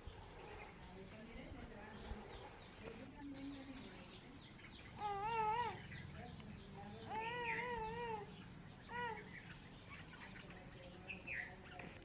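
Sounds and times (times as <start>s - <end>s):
animal crying: 5.0s - 5.8s, 7.1s - 9.3s.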